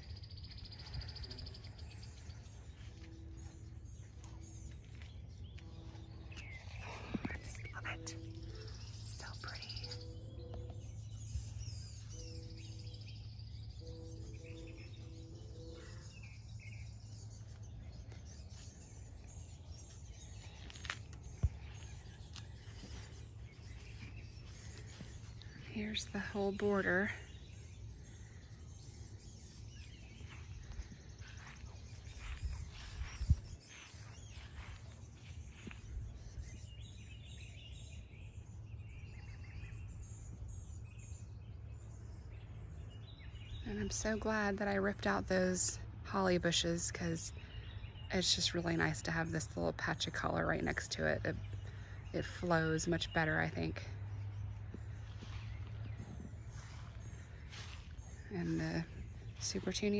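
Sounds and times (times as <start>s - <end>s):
steady low rumble: 0.0s - 37.9s, 49.8s - 59.9s
small birds chirping: 0.0s - 59.9s
low background rumble: 50.0s - 59.9s.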